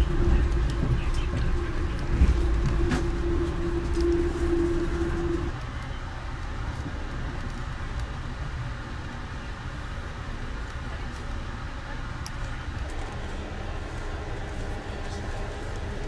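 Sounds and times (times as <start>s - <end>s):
steady hum on one note: 0.0s - 5.5s
train coach rumble: 0.0s - 16.0s.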